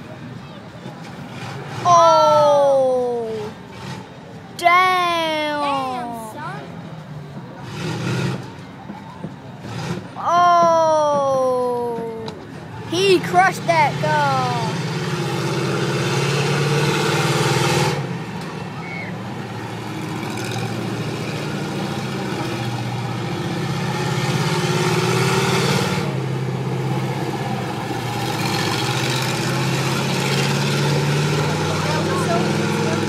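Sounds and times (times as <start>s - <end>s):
monster truck engine revving: 1.1s - 2.4s, 3.3s - 4.3s, 7.6s - 8.6s, 9.6s - 10.4s, 12.9s - 33.0s.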